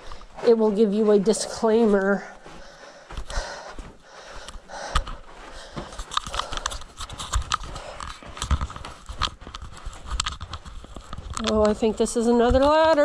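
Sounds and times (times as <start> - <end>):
footsteps on rocky ground: 0.0 - 13.0
panting breath: 2.2 - 8.3.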